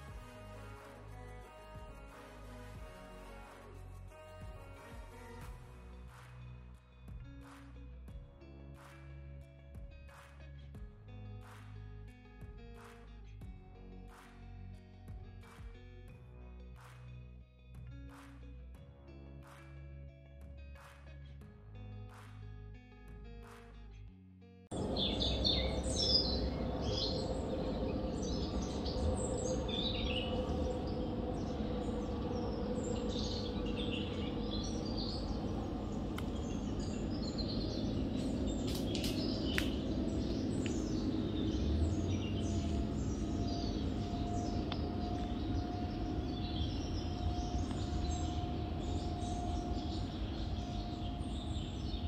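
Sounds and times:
low background rumble: 24.7s - 52.0s
faint steady hum: 24.8s - 52.0s
small birds chirping: 24.8s - 52.0s.

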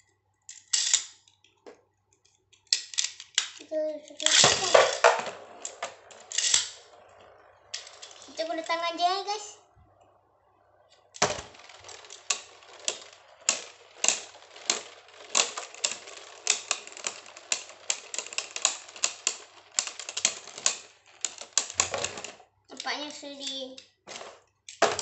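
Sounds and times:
spinning tops clacking: 4.2s - 10.1s, 11.0s - 25.0s.

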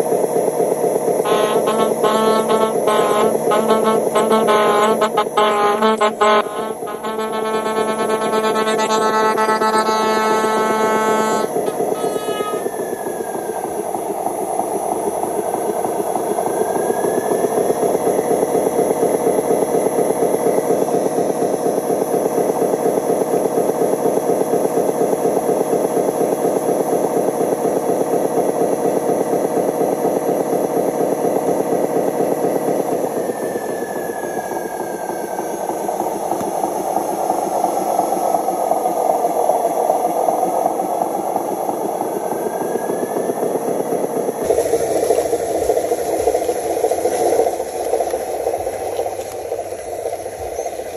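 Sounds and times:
model truck engine rumble: 0.0s - 50.9s
motor whine: 0.1s - 21.8s.

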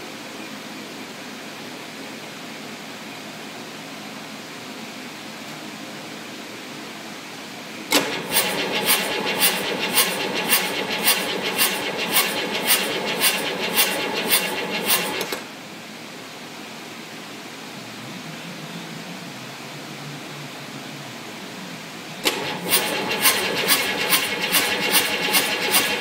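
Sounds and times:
diesel engine cranking on starter: 7.9s - 15.5s, 22.2s - 26.0s.

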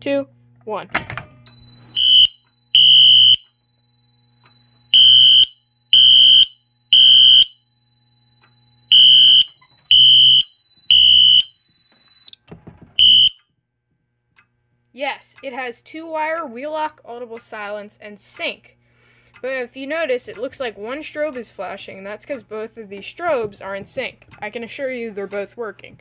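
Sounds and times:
fire alarm horn blasts: 1.5s - 12.3s, 13.0s - 13.4s.

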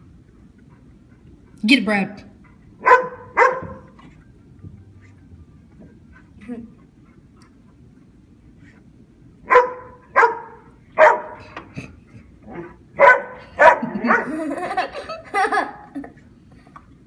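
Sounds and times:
dogs barking: 2.8s - 4.0s, 9.4s - 11.6s, 12.4s - 14.9s.

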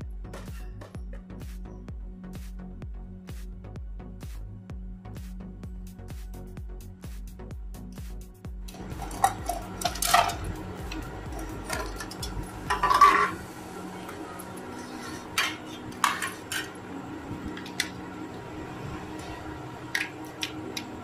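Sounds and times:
steel plates knocking and clattering: 8.8s - 13.4s, 15.3s - 16.8s.

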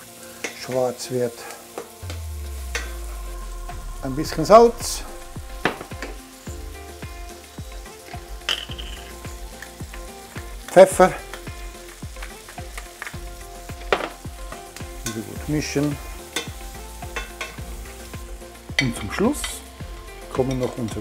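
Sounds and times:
mushrooms sizzling in butter: 0.0s - 21.0s
crackling pops: 1.7s - 6.4s.

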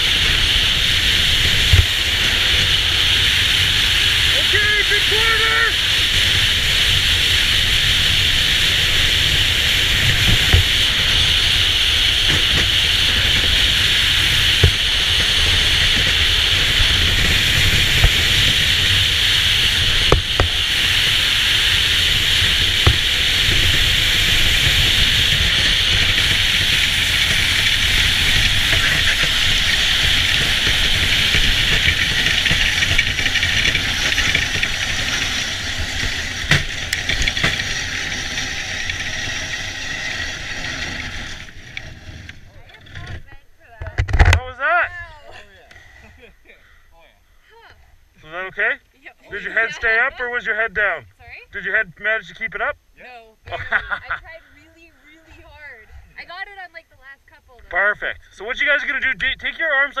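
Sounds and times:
sled runners hissing over ice: 0.0s - 42.6s
sharp knocks: 36.4s - 37.7s.

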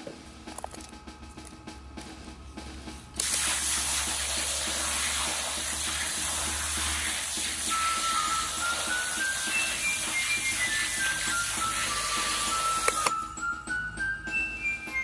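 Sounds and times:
hose nozzle spraying water: 3.2s - 13.1s.

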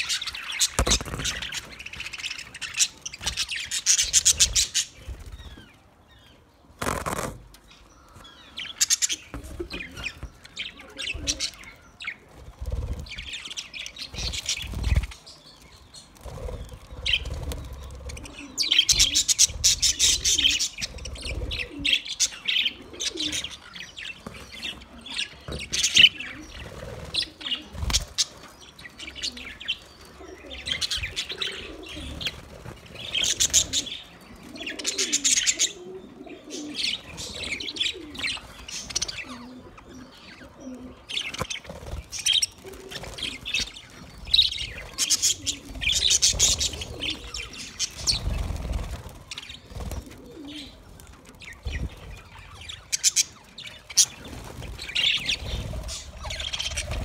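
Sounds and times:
budgerigars chirping: 51.5s - 57.0s.

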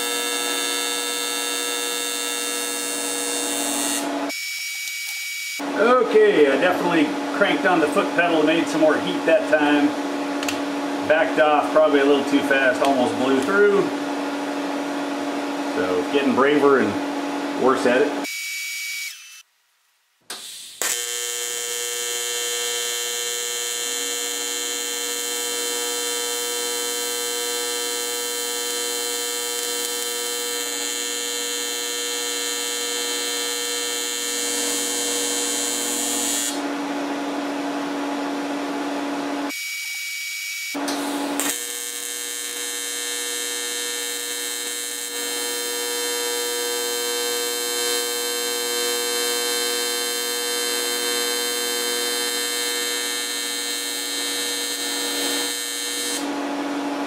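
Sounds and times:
welding arc buzzing: 0.0s - 5.6s, 18.2s - 19.5s, 20.3s - 36.7s, 39.5s - 56.4s.

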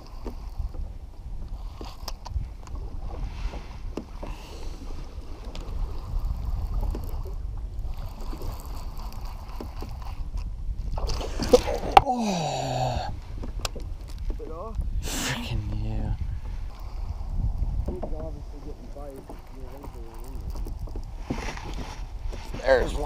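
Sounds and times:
water lapping against kayak: 0.0s - 23.0s
wind buffeting microphone: 0.0s - 23.0s.

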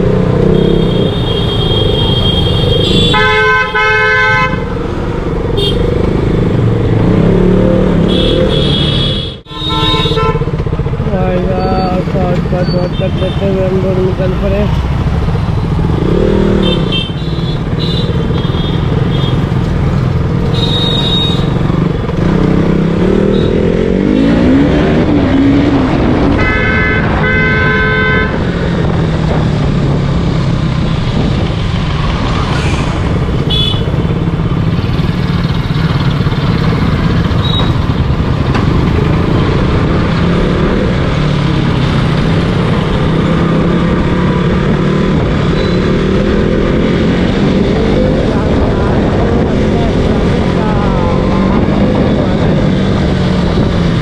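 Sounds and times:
vehicle horn honking: 0.6s - 4.6s, 8.1s - 10.5s, 20.6s - 21.6s, 26.4s - 28.4s, 33.5s - 34.1s
motorcycle engine running: 33.2s - 54.0s.

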